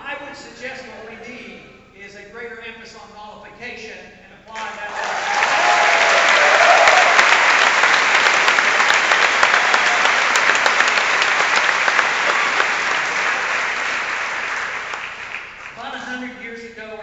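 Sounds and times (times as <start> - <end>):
large audience applauding: 4.6 - 15.8.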